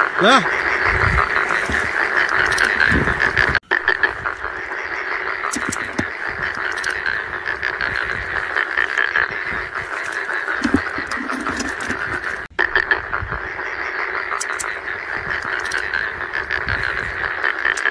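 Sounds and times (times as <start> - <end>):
frogs croaking: 0.0 - 17.9.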